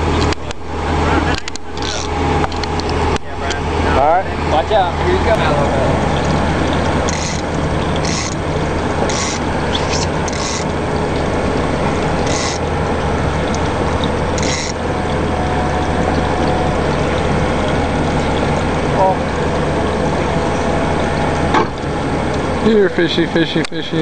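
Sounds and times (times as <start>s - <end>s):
outboard motors droning: 0.0s - 24.0s
fishing reel clicker ratcheting: 7.1s - 8.4s, 9.1s - 10.7s, 12.2s - 12.6s, 14.4s - 14.8s.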